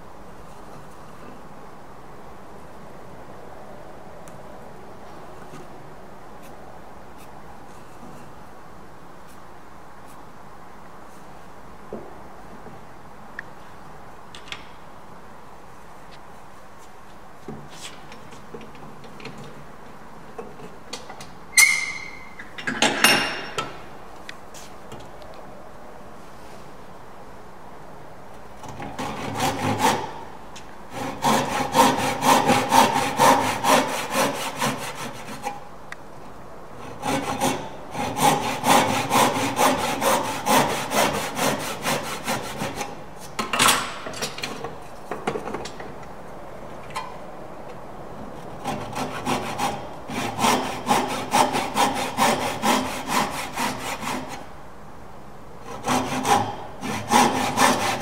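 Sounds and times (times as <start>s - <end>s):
hand saw cutting wood: 28.6s - 35.7s, 36.8s - 43.3s, 48.6s - 54.5s, 55.6s - 58.0s.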